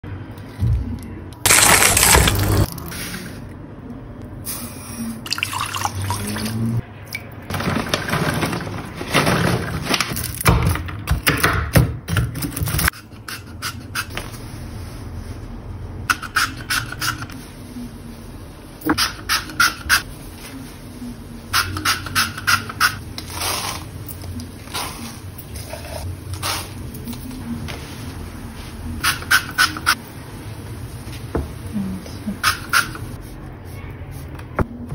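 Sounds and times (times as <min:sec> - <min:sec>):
water poured into metal pot: 0:01.5 - 0:02.9, 0:05.2 - 0:06.6.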